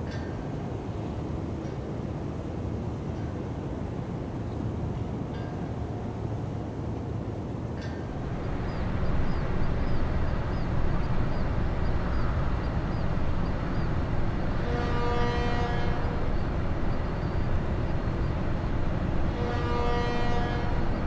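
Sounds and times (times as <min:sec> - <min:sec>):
ship rumbling: 0:00.6 - 0:21.0
short horn-like tone: 0:14.6 - 0:16.4, 0:19.3 - 0:21.0.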